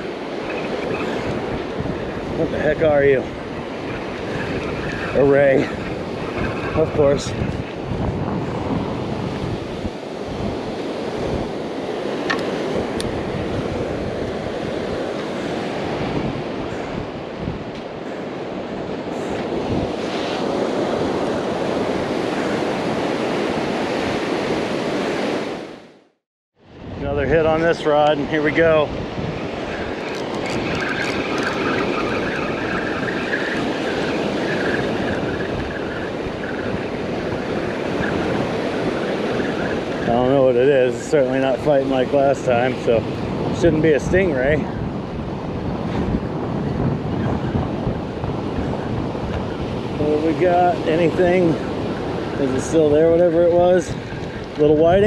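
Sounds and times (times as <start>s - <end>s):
fishing reel whirring: 0.0s - 7.0s, 29.4s - 40.0s
surf breaking on beach: 0.0s - 25.8s, 26.8s - 55.0s
wind buffeting microphone: 0.0s - 25.9s, 26.6s - 55.0s
reel clicks: 29.8s - 32.2s.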